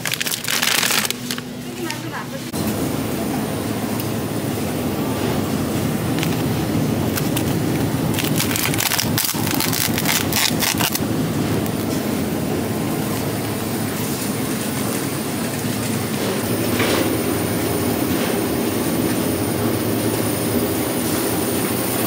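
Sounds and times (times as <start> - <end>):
plastic wrap crinkling: 0.0 - 2.4, 7.1 - 11.0
steady background noise: 0.0 - 22.0.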